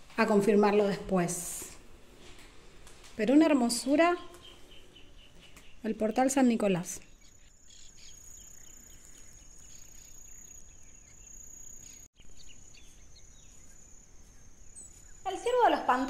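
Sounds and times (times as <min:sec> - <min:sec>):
high-pitched insect trill: 0:07.1 - 0:15.8.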